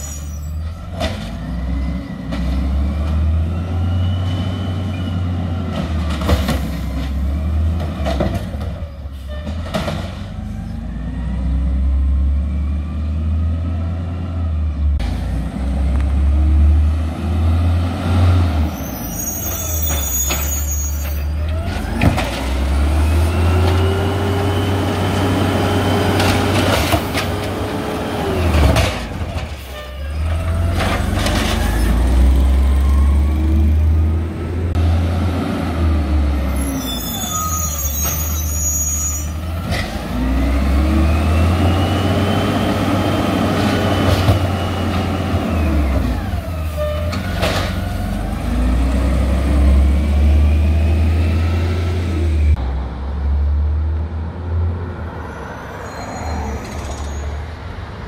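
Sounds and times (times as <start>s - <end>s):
garbage truck engine revving: 39.4s - 52.8s.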